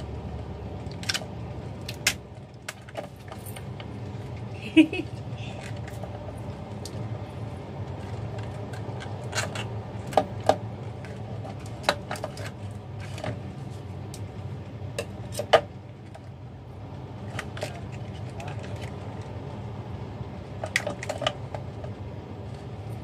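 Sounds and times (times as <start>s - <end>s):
steady low hum: 0.0s - 23.0s
scissors cracking crab shell: 0.9s - 2.9s.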